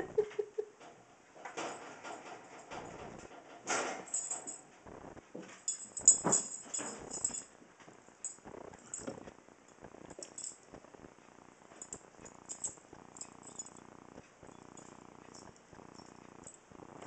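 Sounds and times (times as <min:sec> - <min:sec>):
collar tags jingling: 0:04.0 - 0:04.7, 0:05.5 - 0:07.6, 0:08.2 - 0:10.8, 0:11.7 - 0:16.7.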